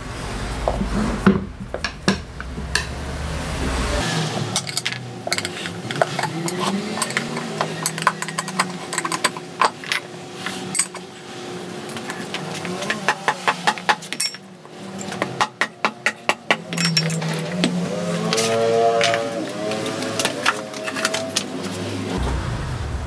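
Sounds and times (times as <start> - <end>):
tire levers clinking on rim: 16.7 - 21.5.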